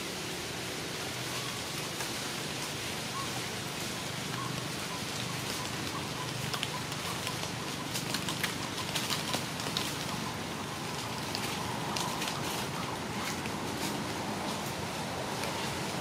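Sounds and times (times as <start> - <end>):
steady outdoor hiss: 0.0 - 16.0
light crackling ticks: 4.2 - 12.6.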